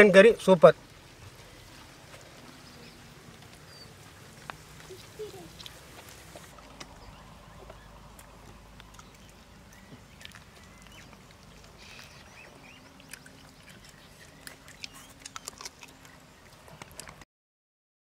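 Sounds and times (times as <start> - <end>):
people chewing and smacking: 1.1 - 17.2
faint bird chirps: 2.5 - 4.0, 11.8 - 16.4.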